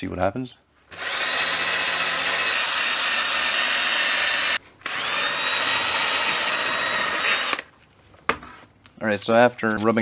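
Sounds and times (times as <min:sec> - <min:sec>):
drill with wire brush scouring metal: 0:00.9 - 0:07.7.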